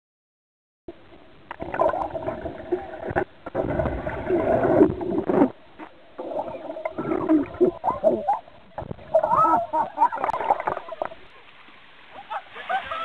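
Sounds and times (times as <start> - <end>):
underwater gurgling and bubbling: 1.5 - 11.2.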